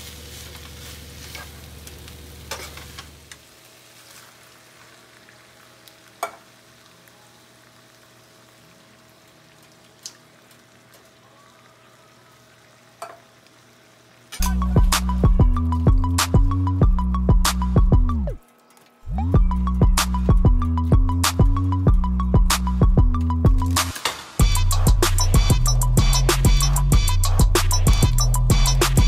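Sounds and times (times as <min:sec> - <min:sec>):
food sizzling in a pan: 0:00.0 - 0:16.4, 0:23.6 - 0:29.0
music: 0:14.4 - 0:29.0.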